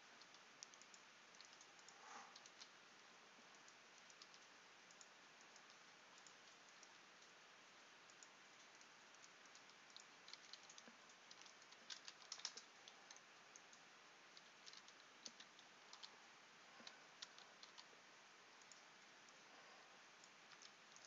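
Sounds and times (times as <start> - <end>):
low steady hiss: 0.0 - 21.0
computer keyboard keystrokes: 9.5 - 13.7.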